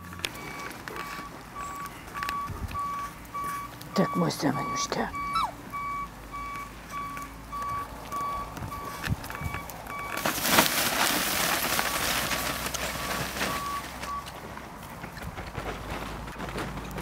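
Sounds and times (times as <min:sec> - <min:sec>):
electronic short beeps: 0:00.4 - 0:10.2
loud rustling: 0:08.3 - 0:17.0.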